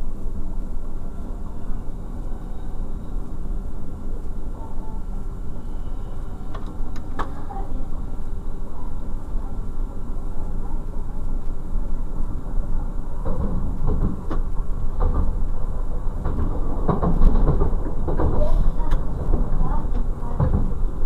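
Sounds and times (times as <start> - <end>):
faint engine hum: 0.0 - 21.0
train running rumble: 0.0 - 21.0
wheels clattering over rail joints: 13.1 - 21.0.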